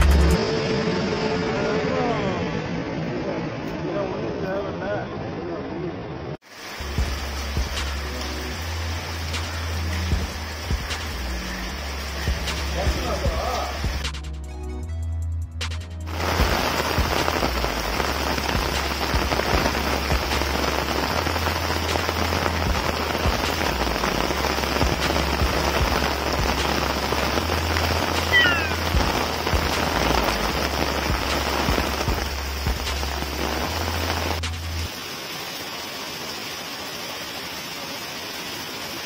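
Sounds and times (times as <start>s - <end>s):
heavy rain on pavement: 6.4s - 14.2s, 16.0s - 39.0s
short falling chirp: 28.3s - 28.9s.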